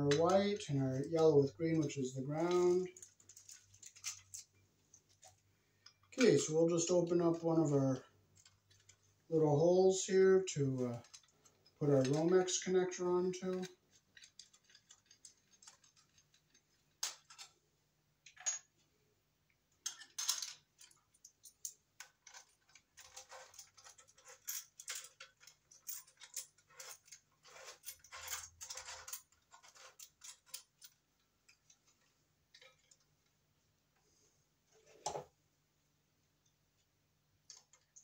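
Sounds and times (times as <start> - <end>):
small clicks and rattles: 2.4 - 6.5, 8.0 - 9.1, 10.8 - 12.7, 13.4 - 17.6, 19.7 - 33.4, 37.4 - 38.0.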